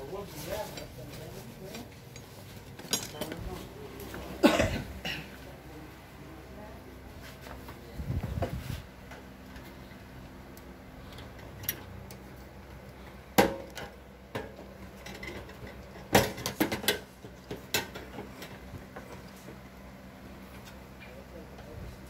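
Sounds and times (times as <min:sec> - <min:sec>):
hard parts clicking and knocking: 0:00.7 - 0:03.6, 0:13.4 - 0:19.6.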